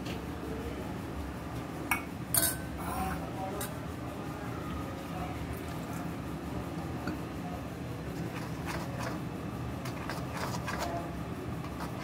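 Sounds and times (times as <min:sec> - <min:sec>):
steady low hum: 0:00.0 - 0:12.0
spoon scraping steel bowl: 0:08.2 - 0:09.2, 0:09.8 - 0:11.0.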